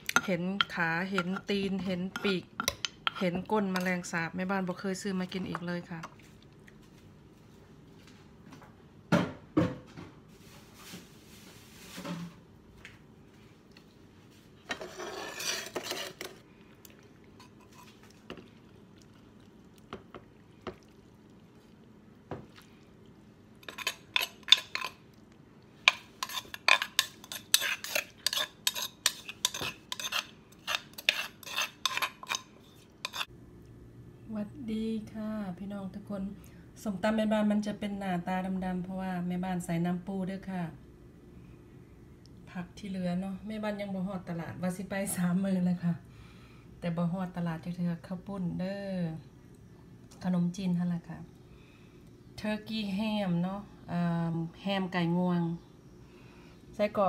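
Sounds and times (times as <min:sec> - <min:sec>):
metal spoon scraping clay mortar: 0:00.0 - 0:03.9, 0:14.7 - 0:16.4, 0:23.6 - 0:25.0, 0:25.9 - 0:33.3.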